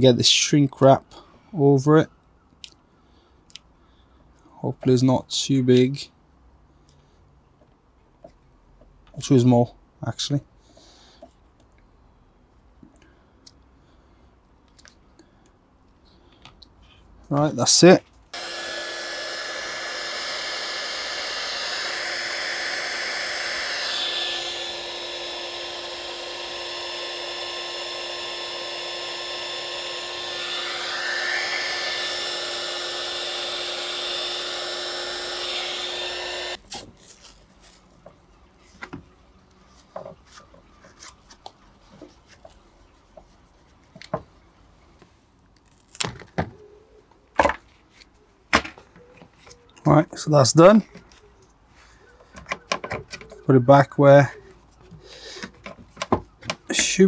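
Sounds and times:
heat gun blowing hiss: 0:18.3 - 0:36.6.

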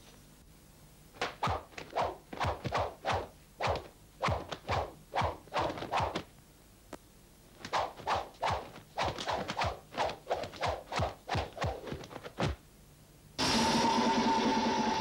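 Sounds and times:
loud steady held tones: 0:13.4 - 0:15.0.

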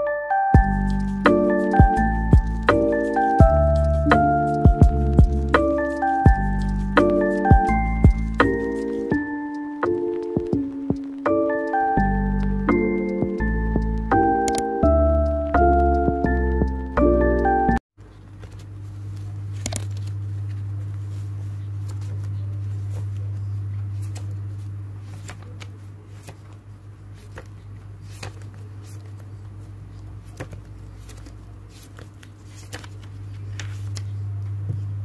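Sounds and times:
paper pages rustling: 0:00.6 - 0:09.3, 0:18.0 - 0:35.0.

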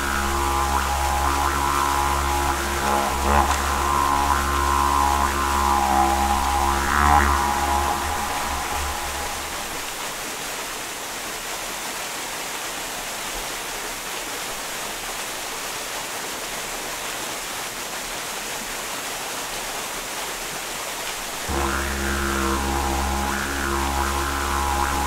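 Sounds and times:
small waterfall rushing: 0:09.4 - 0:21.5.

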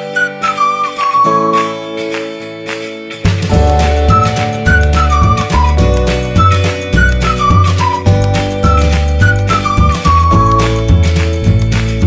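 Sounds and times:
flute-like melody over bass beat: 0:00.0 - 0:02.1, 0:03.5 - 0:11.7.

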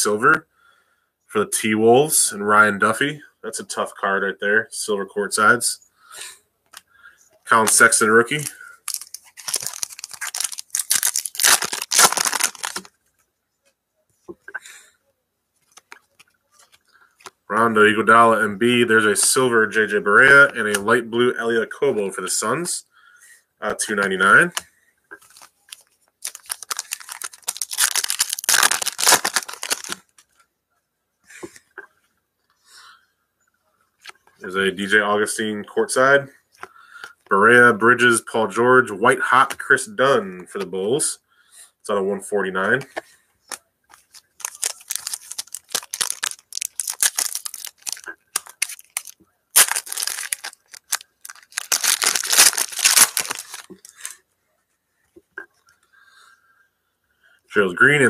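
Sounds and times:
wrapper torn and crumpled: 0:08.4 - 0:12.9, 0:25.2 - 0:30.1, 0:43.9 - 0:54.2.

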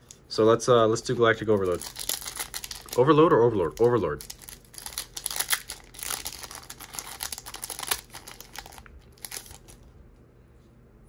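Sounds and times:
foil wrapper crinkling: 0:01.4 - 0:09.9.

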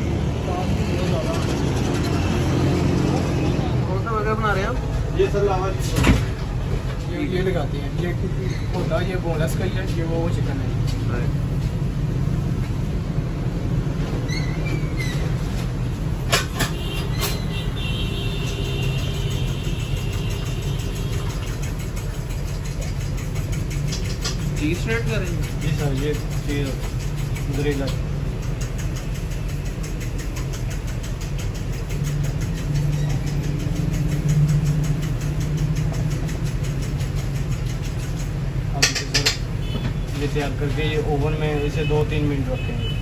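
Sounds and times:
faint rapid ticking: 0:18.4 - 0:38.6.

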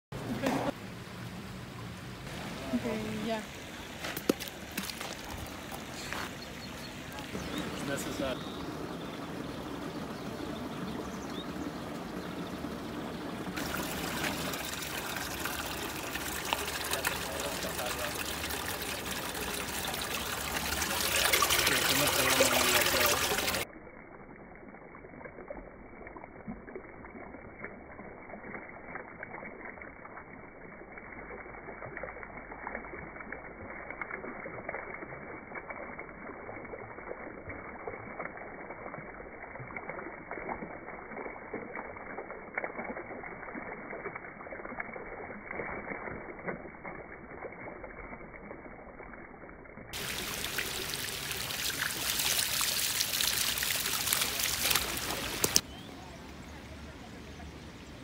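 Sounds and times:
stream flowing in stone channel: 0:00.1 - 0:56.2
fountain jet splashing: 0:00.1 - 0:58.0.

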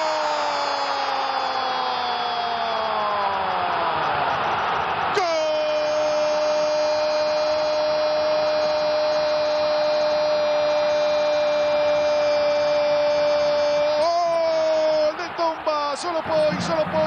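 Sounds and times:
background noise: 0:00.0 - 0:17.0
commentator shouting goal: 0:05.1 - 0:17.0.

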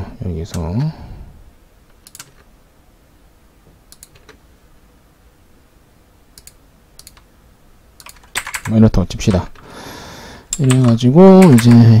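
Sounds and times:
computer mouse clicking: 0:02.0 - 0:02.5, 0:03.9 - 0:04.4, 0:06.4 - 0:07.3, 0:08.0 - 0:08.7, 0:10.5 - 0:11.8.

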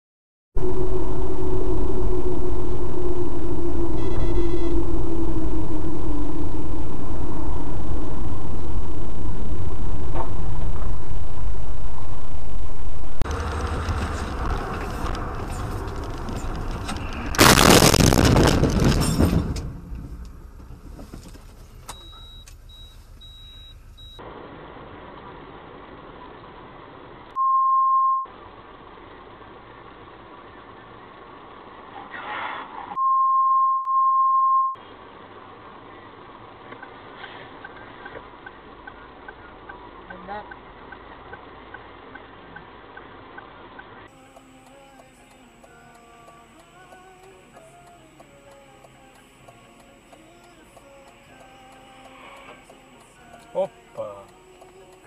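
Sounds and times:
censor bleeps: 0:00.6 - 0:06.6, 0:21.9 - 0:24.2, 0:27.4 - 0:28.3, 0:33.0 - 0:34.8
loud burst of noise: 0:00.6 - 0:20.2
road and engine rumble: 0:00.6 - 0:27.4, 0:28.2 - 0:33.0, 0:34.7 - 0:55.0.

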